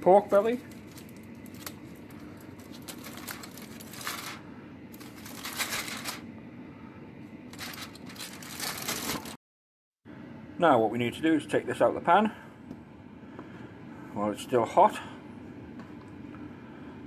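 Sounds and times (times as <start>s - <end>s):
aluminium foil crinkling: 0.0s - 6.3s, 7.5s - 9.4s
steady low hum: 0.0s - 9.4s, 10.1s - 17.0s.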